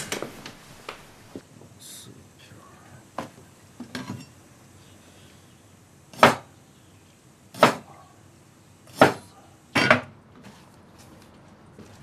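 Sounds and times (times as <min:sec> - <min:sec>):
cleaver chopping on wooden board: 0:06.2 - 0:06.5, 0:07.6 - 0:07.9, 0:08.9 - 0:09.2.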